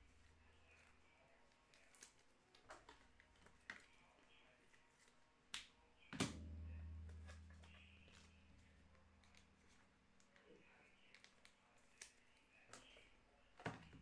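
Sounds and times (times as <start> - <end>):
low hum: 6.2 - 10.2.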